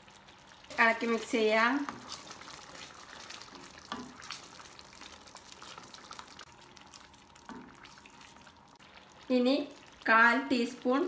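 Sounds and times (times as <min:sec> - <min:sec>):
wooden spoon stirring in pan: 0:00.0 - 0:10.9.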